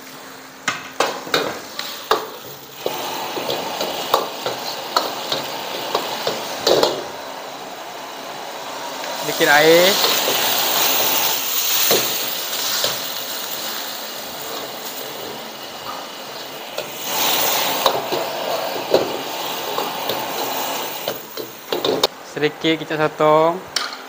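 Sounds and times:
noodles sizzling in wok: 0:01.0 - 0:22.1
ladle scraping wok: 0:01.5 - 0:07.1, 0:09.1 - 0:22.1.

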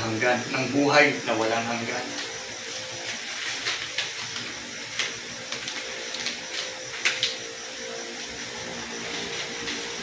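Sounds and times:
paper rustling and crackling: 0:03.0 - 0:07.4.

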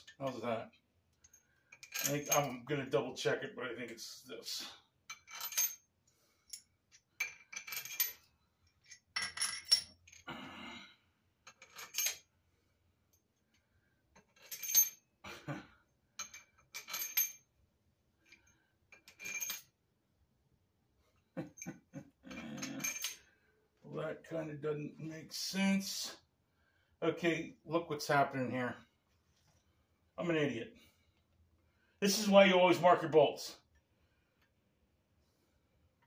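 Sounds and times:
metal bolts clinking: 0:01.2 - 0:02.6, 0:05.1 - 0:05.8, 0:06.5 - 0:10.2, 0:11.5 - 0:12.2, 0:16.2 - 0:17.4, 0:22.3 - 0:23.2.

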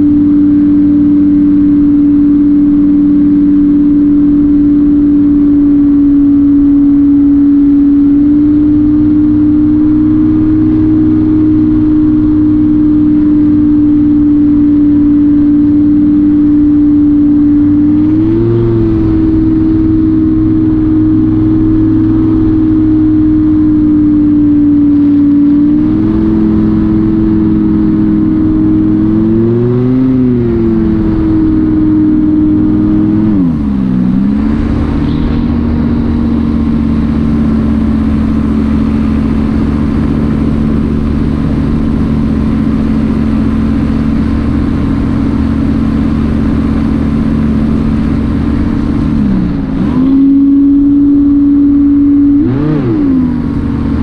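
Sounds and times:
wind rush: 0:26.0 - 0:45.0.

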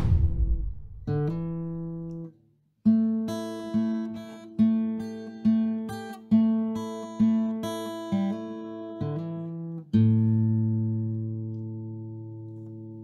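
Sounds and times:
guitar strumming chords: 0:01.0 - 0:02.3.

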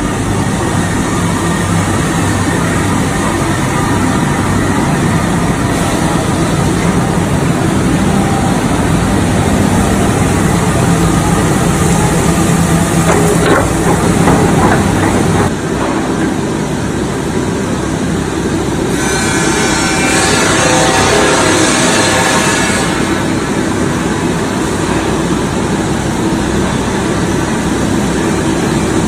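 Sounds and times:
rolling mill din: 0:00.0 - 0:29.0
metallic clatter: 0:13.0 - 0:16.2.

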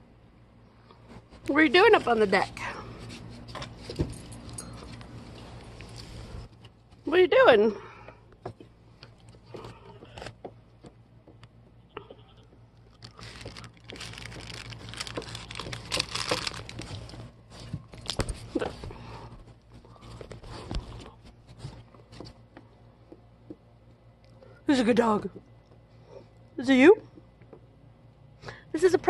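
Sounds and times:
puppy crunching a pretzel: 0:12.5 - 0:18.7.

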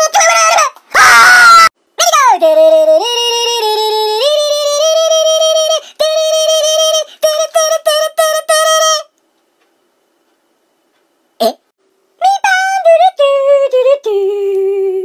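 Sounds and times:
loud scream: 0:00.0 - 0:02.3
high-pitched voice singing: 0:00.0 - 0:09.1, 0:12.2 - 0:15.0.

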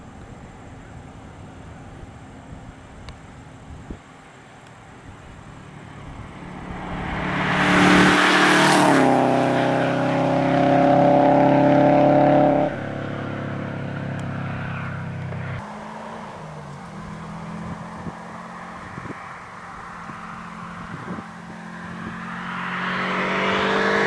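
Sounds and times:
car engine driving past fast: 0:05.5 - 0:19.4, 0:21.6 - 0:24.0
tyre and wind noise: 0:20.0 - 0:21.4.

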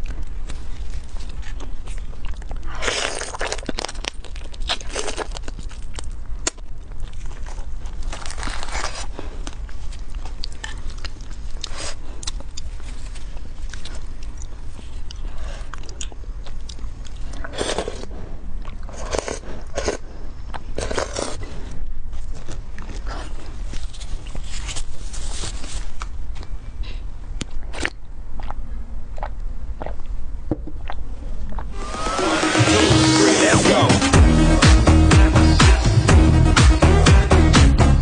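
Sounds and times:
crab shells crunching: 0:00.0 - 0:18.1
wet chewing: 0:00.0 - 0:24.9, 0:27.4 - 0:30.2
low hum: 0:26.1 - 0:38.0.

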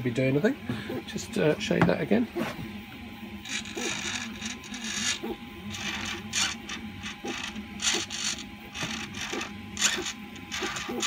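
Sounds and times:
servos whirring: 0:02.3 - 0:11.0.

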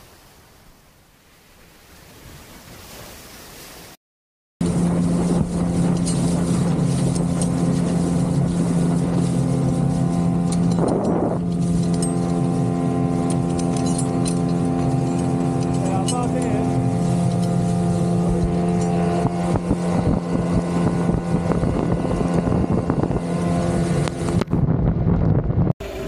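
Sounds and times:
sea and wind: 0:00.0 - 0:04.0, 0:04.6 - 0:26.0
outboard motor running: 0:04.6 - 0:26.0.

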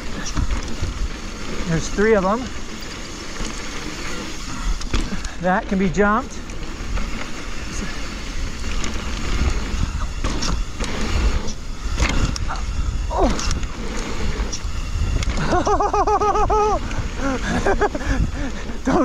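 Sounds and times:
wind rumble on microphone: 0:00.0 - 0:01.4, 0:08.4 - 0:18.9
bike rattling over bumps: 0:00.0 - 0:19.0
tyres on dirt: 0:00.0 - 0:19.0.

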